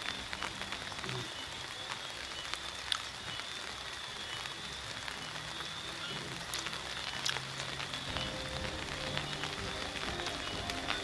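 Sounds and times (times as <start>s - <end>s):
rain falling: 0.0s - 11.0s
raindrop taps: 6.2s - 11.0s.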